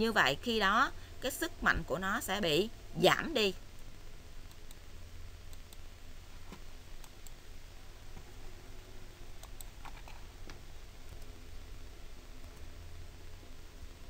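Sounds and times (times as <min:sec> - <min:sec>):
low steady hum: 0:00.0 - 0:14.0
computer clicks: 0:09.4 - 0:10.2.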